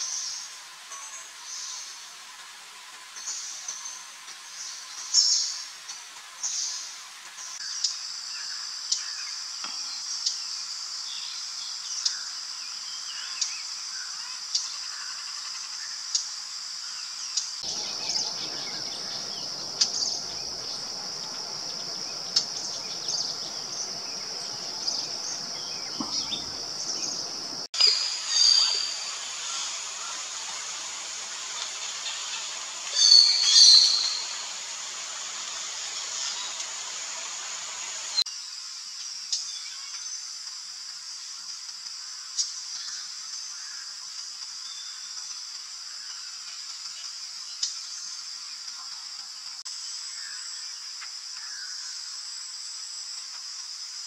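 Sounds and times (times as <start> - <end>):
loud bird calls: 17.6 - 27.7, 33.0 - 34.5
bird chirps: 17.6 - 29.0, 33.0 - 34.4
high insect buzz: 17.6 - 38.2.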